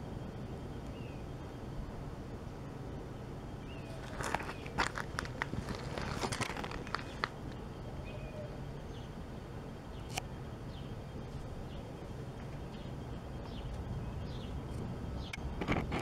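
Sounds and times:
bird chirps: 3.6s - 4.8s, 8.0s - 9.2s.

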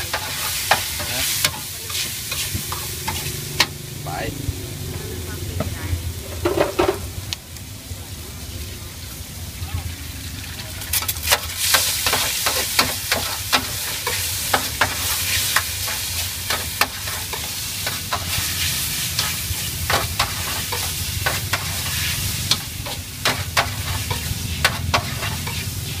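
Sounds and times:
metal spatula scraping wok: 0.0s - 3.8s, 10.8s - 26.0s
food sizzling in hot oil: 0.0s - 26.0s.

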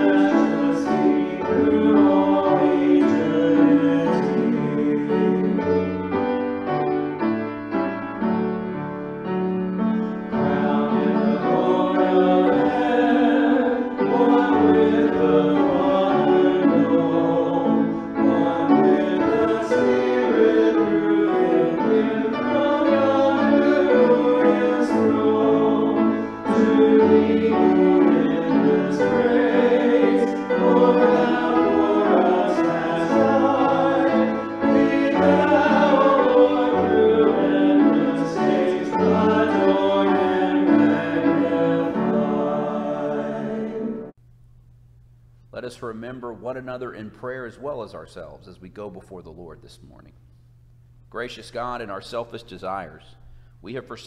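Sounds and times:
group singing worship song: 0.0s - 6.6s, 10.0s - 44.2s
grand piano: 0.0s - 44.2s.

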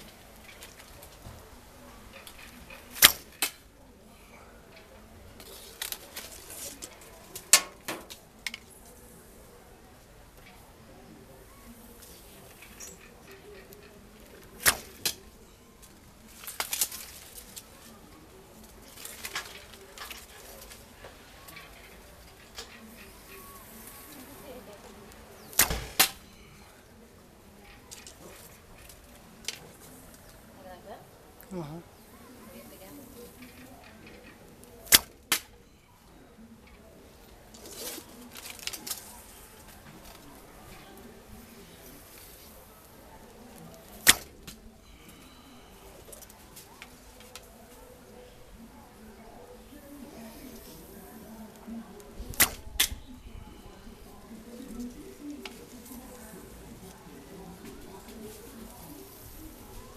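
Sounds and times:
arrow knocking tin can: 2.9s - 3.6s, 25.5s - 26.2s
bow string snapping: 25.5s - 26.2s, 34.9s - 35.6s, 44.0s - 44.6s, 52.3s - 53.0s
bowstring snap: 52.3s - 53.0s.

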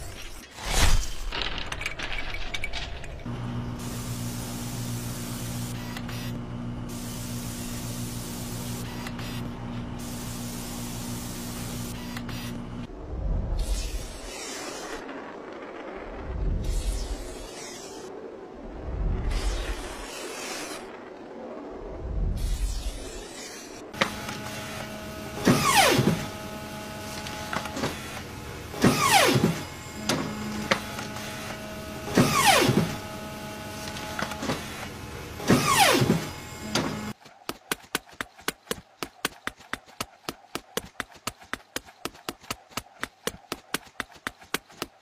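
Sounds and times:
steady low hum: 3.2s - 14.4s.

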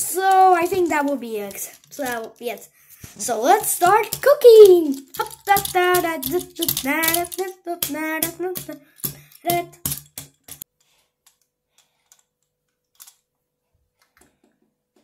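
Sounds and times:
plastic toy clicks and taps: 0.2s - 2.7s, 3.5s - 10.6s.

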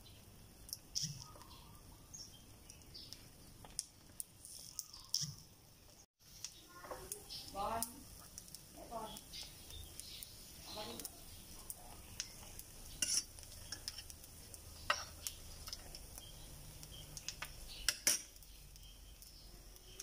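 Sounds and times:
eggs sizzling faintly: 0.0s - 20.0s
utensil clicking and scraping in pan: 0.6s - 5.5s, 6.2s - 20.0s.

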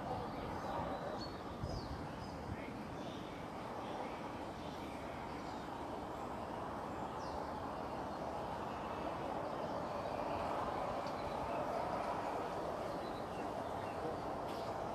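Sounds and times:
outdoor background noise: 0.0s - 14.9s.

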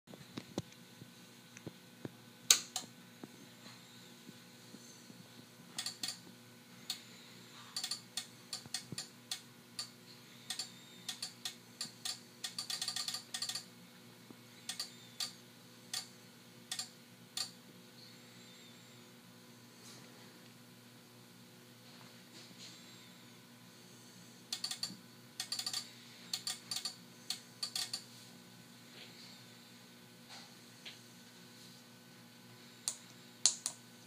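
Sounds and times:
faint electrical hum: 0.1s - 34.0s
sharp mechanical clicks: 5.8s - 6.2s, 7.8s - 9.9s, 10.5s - 13.7s, 14.7s - 16.1s, 16.7s - 17.6s, 24.5s - 28.0s.

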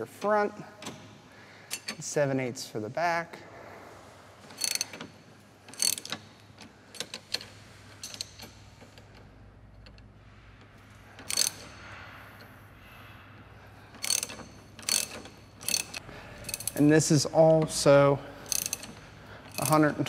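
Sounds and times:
ratchet wrench clicking: 4.5s - 5.1s, 5.7s - 6.3s, 6.9s - 9.0s, 11.2s - 11.8s, 13.9s - 17.0s, 18.4s - 20.0s.

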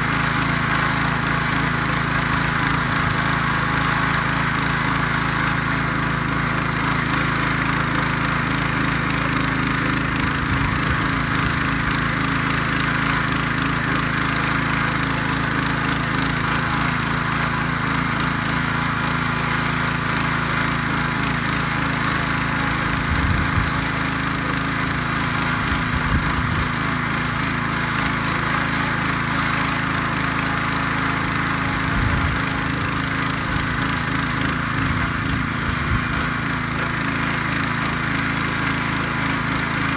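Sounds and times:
motor hoe engine running: 0.0s - 39.9s
tines churning soil: 0.0s - 39.9s.

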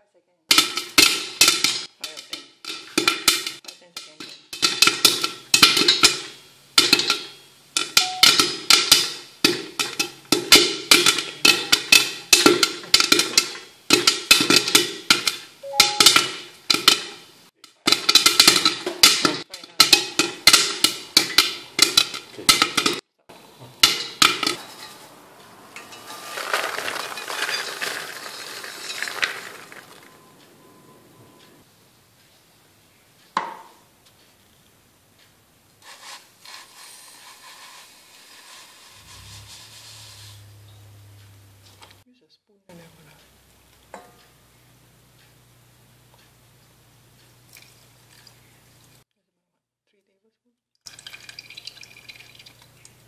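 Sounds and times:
corn kernels popping in pot: 0.5s - 23.0s, 25.8s - 30.8s
popcorn pouring into plastic bowl: 25.9s - 30.2s, 35.8s - 40.4s.

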